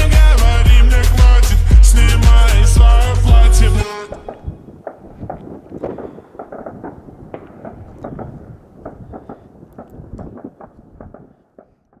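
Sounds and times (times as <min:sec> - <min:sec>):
fireworks bursting: 0:03.9 - 0:12.0.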